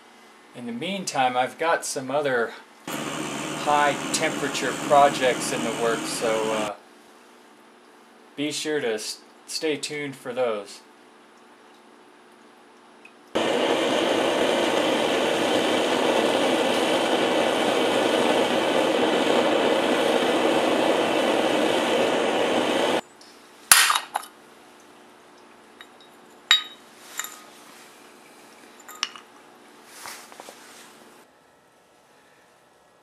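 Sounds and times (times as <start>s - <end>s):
propane burner roaring: 2.8s - 6.8s, 13.3s - 23.0s.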